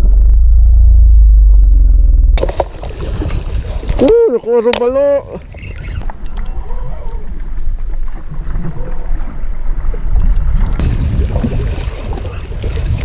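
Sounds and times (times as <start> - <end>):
wind buffeting microphone: 10.0 - 13.0.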